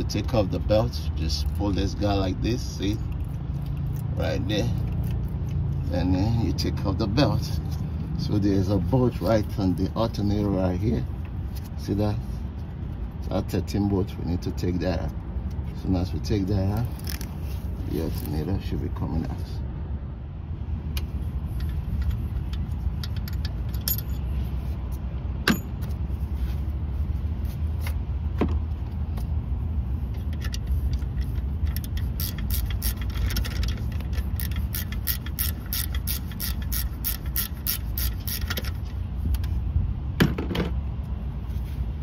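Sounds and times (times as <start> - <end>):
hand ratchet clicking: 30.2 - 38.9.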